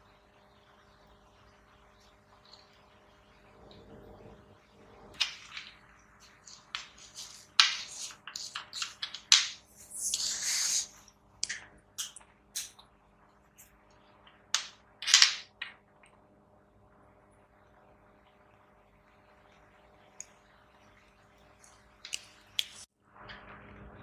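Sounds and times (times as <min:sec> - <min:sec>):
clicks and taps of small parts: 0:14.6 - 0:15.8.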